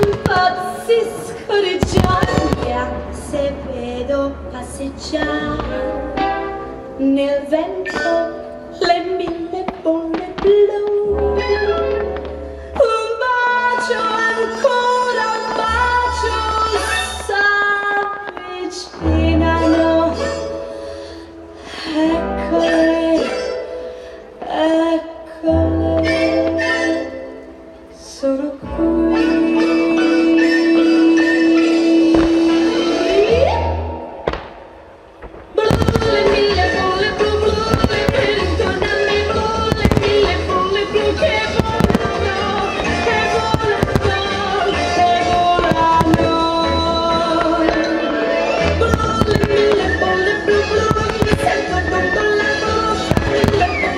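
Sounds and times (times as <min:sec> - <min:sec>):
fireworks bursting with bangs: 0:00.0 - 0:19.0, 0:34.2 - 0:53.9
song with long held notes: 0:00.0 - 0:53.9.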